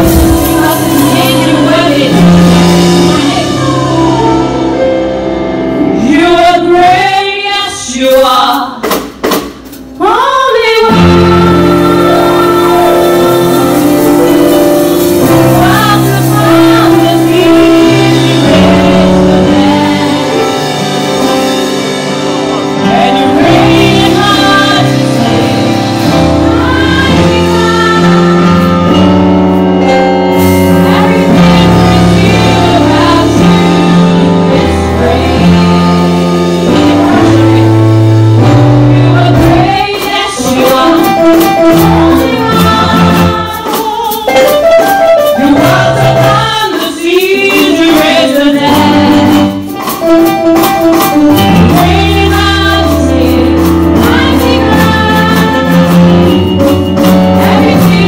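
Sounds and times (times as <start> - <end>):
women singing: 0.0 - 4.9, 5.8 - 8.8, 10.0 - 21.3, 22.7 - 29.2, 30.6 - 50.0, 51.4 - 58.0
sharp percussion hits: 0.0 - 5.0, 8.6 - 58.0
synthesizer chords: 0.0 - 5.9.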